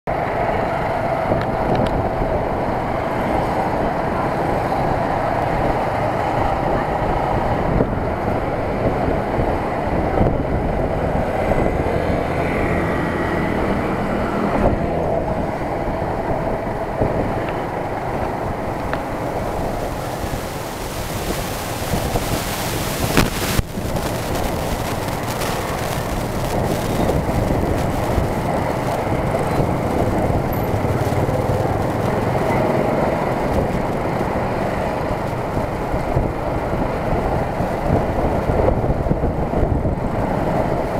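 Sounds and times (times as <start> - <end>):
road and wind noise: 0.1 - 40.9
street traffic: 0.1 - 40.9
motorbike engine running: 17.4 - 37.0
hiss: 18.9 - 30.1.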